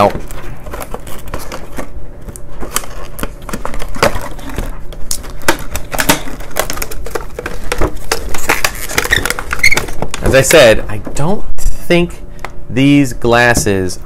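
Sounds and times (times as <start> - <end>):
plastic packaging crinkling: 0.0 - 10.7.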